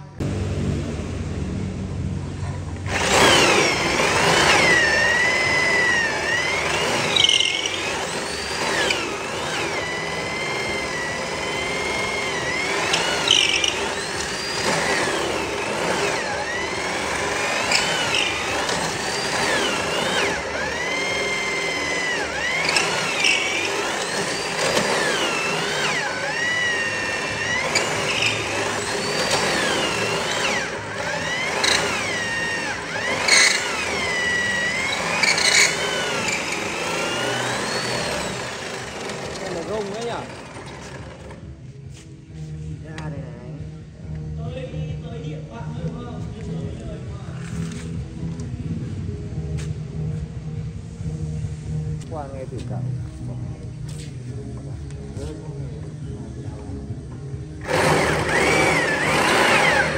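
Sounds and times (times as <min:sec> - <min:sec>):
electric drill drilling into wood: 0:02.8 - 0:41.4, 0:57.6 - 0:59.9.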